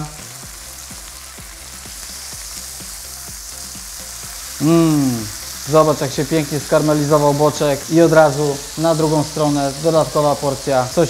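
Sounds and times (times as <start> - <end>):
meat sizzling on grill plate: 0.0 - 11.0
person humming: 4.6 - 5.4.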